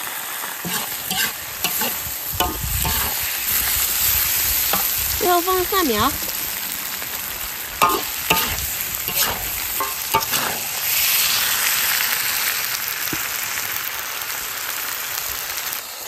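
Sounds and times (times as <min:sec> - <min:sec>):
hot oil sizzling: 0:00.0 - 0:16.0
metal spatula scraping a wok: 0:00.6 - 0:12.1.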